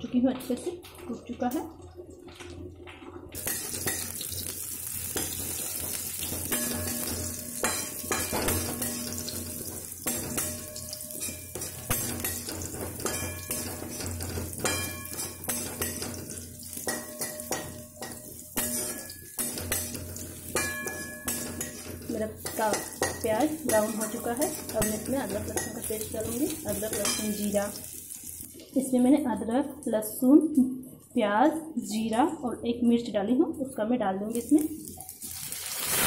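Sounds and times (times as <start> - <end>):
metal spatula scraping pan: 3.4 - 28.2
onions sizzling in hot oil: 3.4 - 28.9, 34.3 - 36.0.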